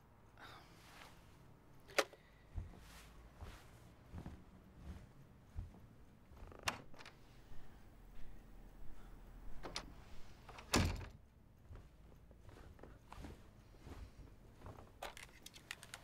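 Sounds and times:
door latch clicks: 9.6s - 11.2s
door shutting with a thud: 10.6s - 11.2s.

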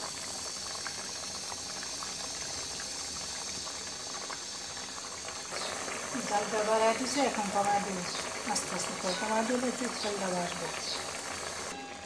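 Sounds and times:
curry bubbling in a pot: 0.0s - 11.8s.

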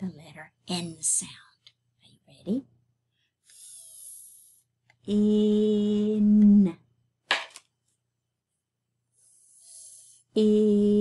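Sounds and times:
woman breathing: 3.1s - 4.8s, 9.1s - 10.3s.

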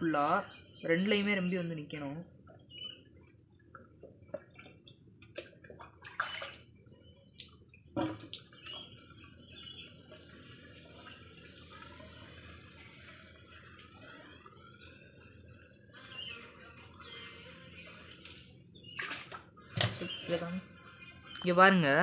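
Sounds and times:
splashes and knocks: 4.0s - 9.0s, 19.0s - 20.4s.

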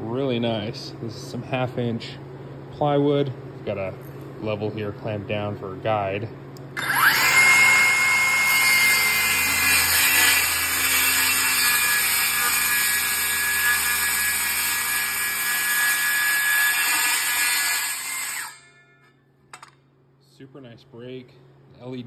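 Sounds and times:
saw blade cutting plywood: 6.8s - 18.8s
circular saw motor whine: 6.8s - 18.9s.

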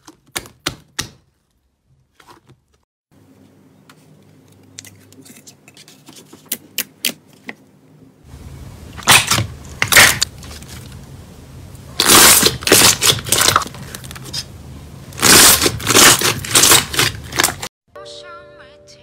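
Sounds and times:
slime squishing and crackling: 12.0s - 14.5s, 15.2s - 17.7s.

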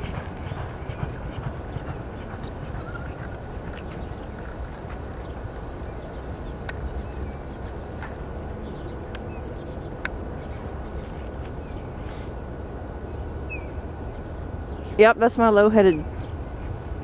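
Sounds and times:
low outdoor background rumble: 0.0s - 17.0s
faint bird chirps: 2.4s - 8.2s.

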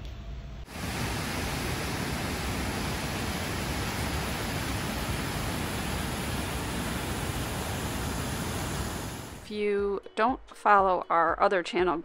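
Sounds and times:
falling water rushing: 0.7s - 9.5s.

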